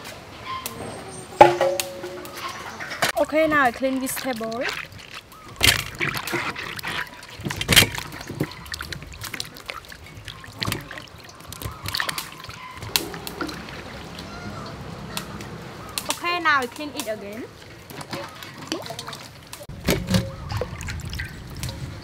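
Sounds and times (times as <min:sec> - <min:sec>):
water sloshing and splashing: 0:00.7 - 0:22.0
sharp knocks on steel bowl: 0:01.4 - 0:02.4.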